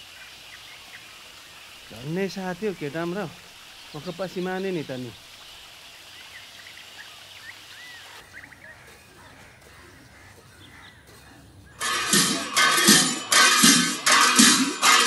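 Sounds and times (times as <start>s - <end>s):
small birds chirping: 0.0s - 12.5s
loud music with percussion: 11.8s - 15.0s.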